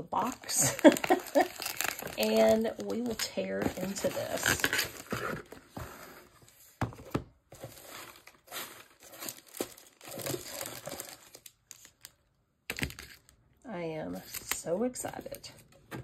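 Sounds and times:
paper filler rustling: 0.2s - 12.0s.

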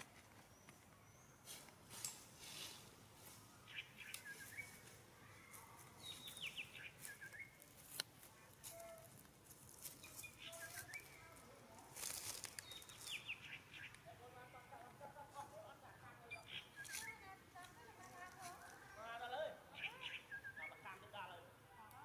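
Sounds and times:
bird singing faintly: 3.2s - 9.2s, 9.8s - 14.7s, 16.0s - 21.5s.

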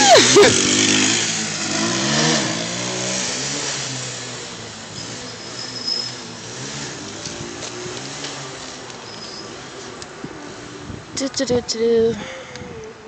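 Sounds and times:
motorcycle engine revving: 0.0s - 9.9s.

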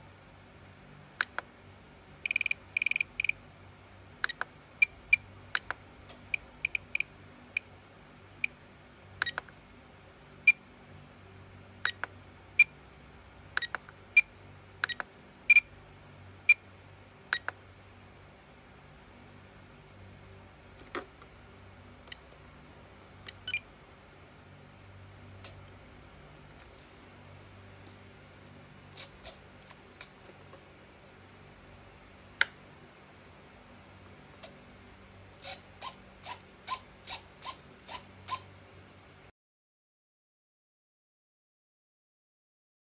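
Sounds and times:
short high transmitter beeps: 2.2s - 3.4s.

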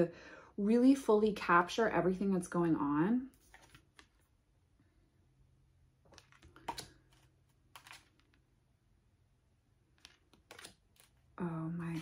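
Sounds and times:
cards swishing and clicking: 6.1s - 8.4s, 10.0s - 11.2s.

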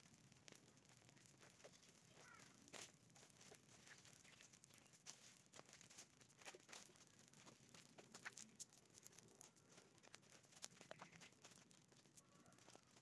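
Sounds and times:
burning leaves crackling: 0.0s - 13.0s.

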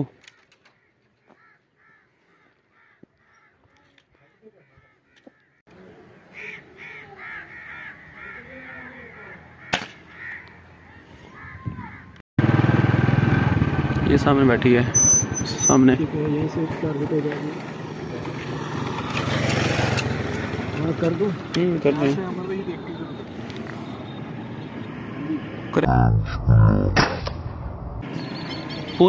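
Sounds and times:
birds calling: 0.0s - 12.2s, 14.9s - 25.7s, 28.0s - 29.0s
loud steady rumble: 12.4s - 14.9s.

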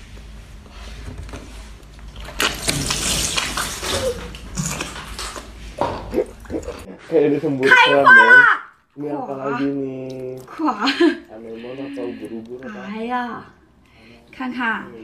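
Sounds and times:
wet slurping mouth sounds: 2.2s - 6.9s.

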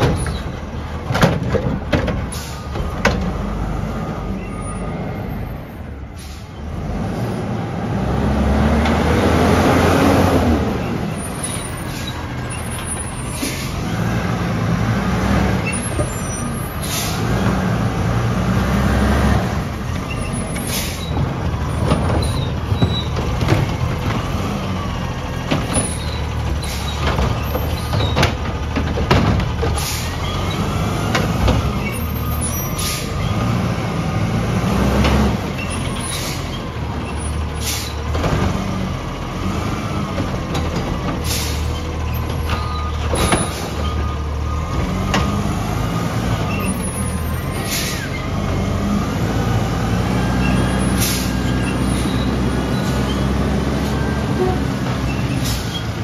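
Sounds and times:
diesel truck engine revving: 0.0s - 56.0s
metal and plastic clanks: 1.1s - 2.3s, 27.0s - 29.8s.

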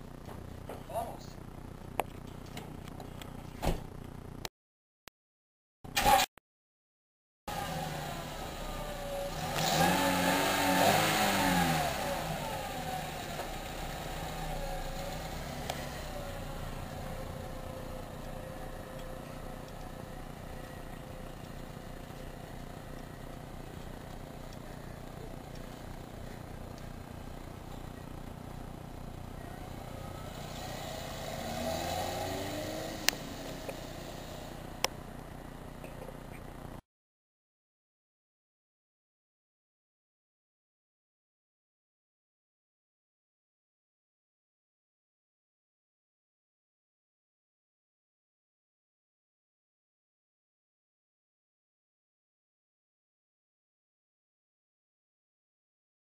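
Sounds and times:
car engine revving: 7.5s - 35.2s.

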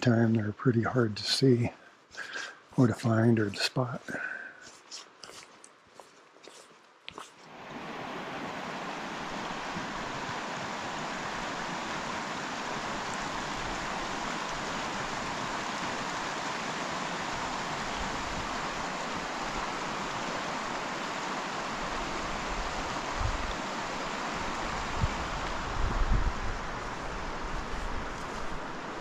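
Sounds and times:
creek rushing over rocks: 7.2s - 29.0s.

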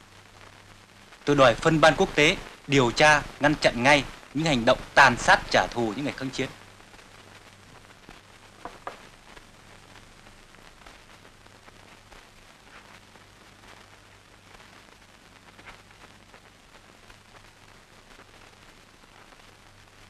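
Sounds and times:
old film soundtrack hiss: 0.0s - 20.0s
faint ticks: 6.9s - 17.5s.

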